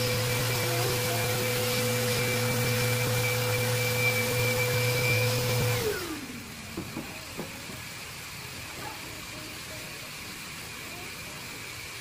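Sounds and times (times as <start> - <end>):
orbital sander whining: 0.0 - 8.3.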